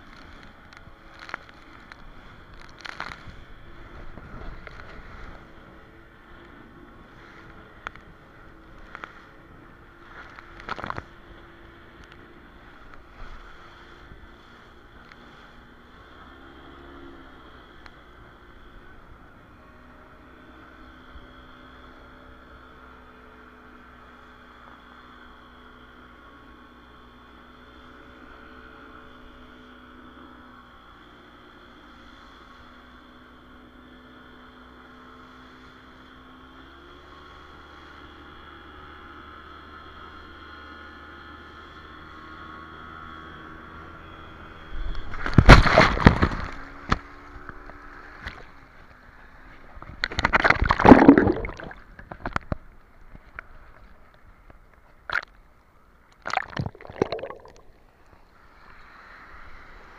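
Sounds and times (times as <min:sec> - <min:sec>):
speedboat engine running: 0:00.0 - 0:59.9
water wash: 0:45.1 - 0:47.0, 0:49.7 - 0:52.6, 0:56.2 - 0:57.8
water sloshing: 0:45.1 - 0:48.6, 0:49.6 - 0:54.2, 0:55.0 - 0:55.4, 0:56.2 - 0:57.8
loud splashing: 0:45.2 - 0:46.7, 0:50.1 - 0:52.3, 0:56.2 - 0:57.7.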